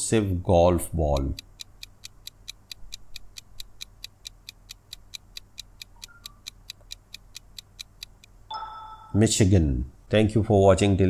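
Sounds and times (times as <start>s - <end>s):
countdown timer ticking: 0.8s - 9.2s.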